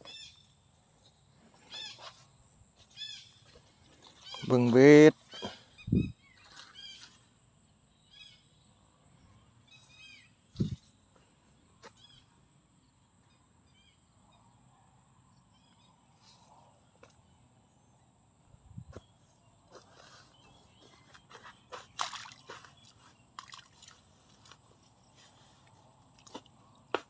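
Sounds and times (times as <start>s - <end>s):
short chirping animal calls: 1.6s - 2.2s.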